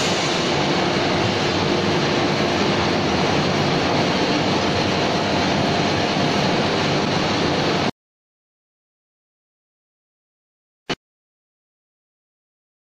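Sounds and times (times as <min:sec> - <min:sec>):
hydraulic machinery running: 0:00.0 - 0:07.9.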